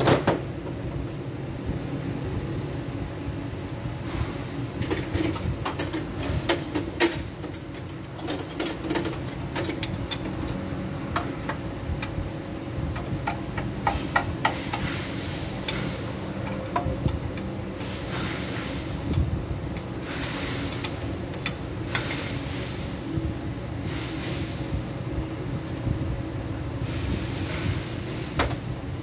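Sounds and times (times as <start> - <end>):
wrench clicking on bolts: 4.8 - 12.1, 12.9 - 14.9, 19.1 - 22.2.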